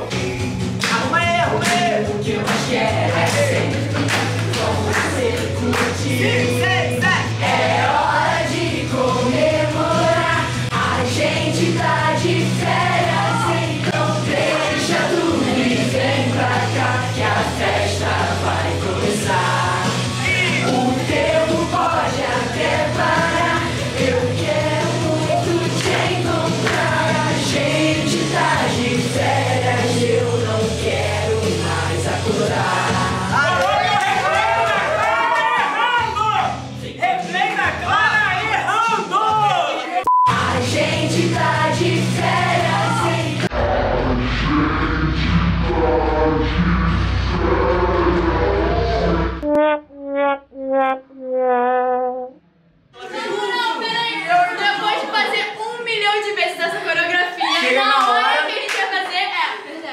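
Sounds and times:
group of voices singing: 0.0 - 33.6, 40.3 - 49.4
upbeat pop song: 0.0 - 33.6, 40.2 - 43.5
steady bass line: 43.5 - 52.3.

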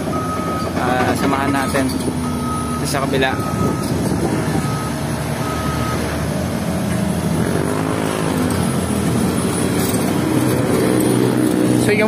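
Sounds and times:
reversing alarm beeping: 0.0 - 6.3
bulldozer diesel engine running: 0.0 - 12.0.

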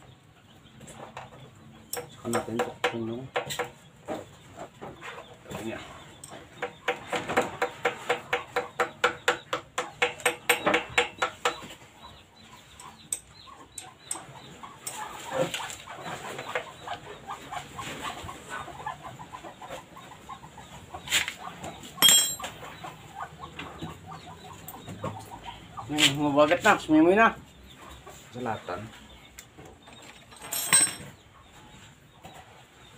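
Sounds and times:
chicken clucking: 0.0 - 10.0, 10.6 - 30.0
sharp clink with ring: 22.0 - 22.5.

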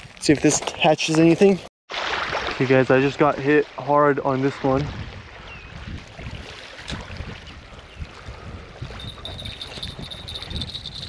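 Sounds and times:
wind buffeting microphone: 4.6 - 11.0
fishing reel ringing: 9.0 - 11.0.

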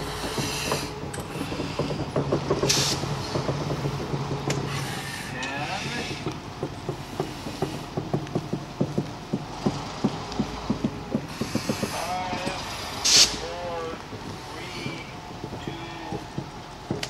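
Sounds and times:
diesel engine drone: 0.0 - 17.0
locomotive wheels knocking and clanking: 0.0 - 17.0
short hiss: 12.7 - 13.4.

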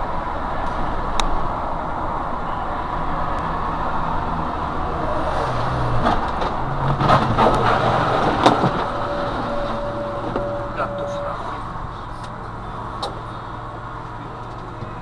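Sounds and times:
truck road and engine noise: 0.0 - 15.0
steady high tone: 2.0 - 6.7, 8.0 - 13.0
sharp knocks and clatter: 6.0 - 11.1.

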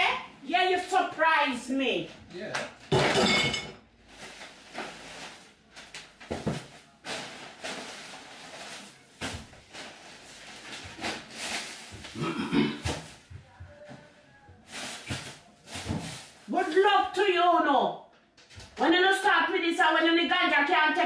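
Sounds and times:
pan and utensils clattering: 2.9 - 3.8.

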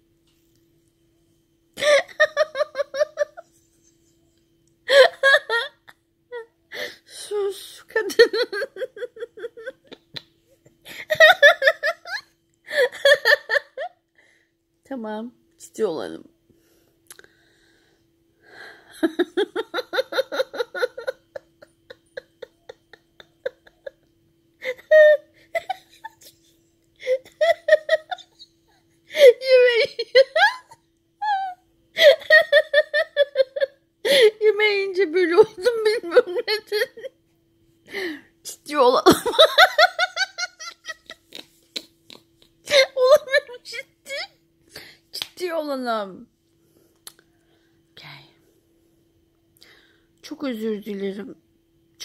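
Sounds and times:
woman laughing: 1.8 - 3.9, 4.9 - 6.4, 7.6 - 14.0, 18.9 - 37.2, 38.9 - 44.3
woman giggling: 1.8 - 4.2, 4.9 - 6.4, 7.8 - 14.0, 18.8 - 34.6, 35.2 - 37.2, 39.0 - 44.3.

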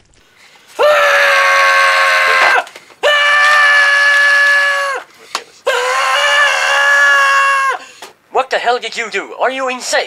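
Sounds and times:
person screaming: 0.8 - 7.9.

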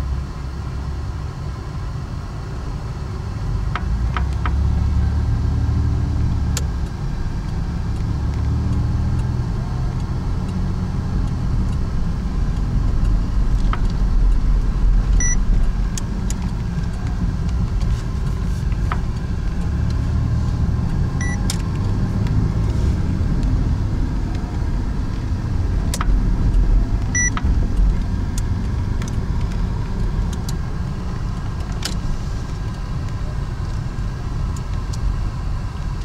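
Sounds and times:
car road and engine rumble: 0.0 - 36.0
short high beeps: 15.2 - 15.4, 21.2 - 21.4, 27.1 - 27.4.

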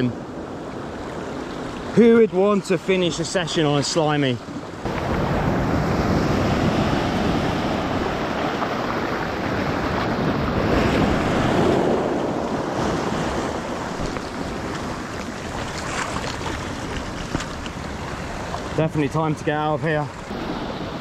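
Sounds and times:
waves breaking on shore: 0.0 - 21.0
wind buffeting microphone: 4.8 - 18.8.

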